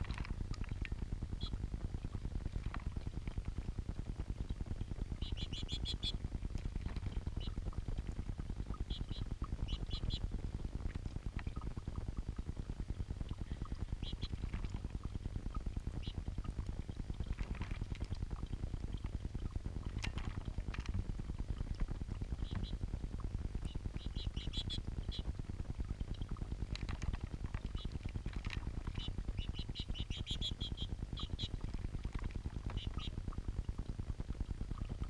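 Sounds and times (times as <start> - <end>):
birds splashing in water: 0.0 - 12.6, 13.2 - 33.9
fountain bubbling and gurgling: 0.0 - 35.0
goldfinch chirps: 5.2 - 6.2, 8.8 - 10.3, 14.0 - 14.5, 22.4 - 22.8, 23.6 - 25.3, 27.7 - 28.0, 28.8 - 31.6, 32.7 - 33.2.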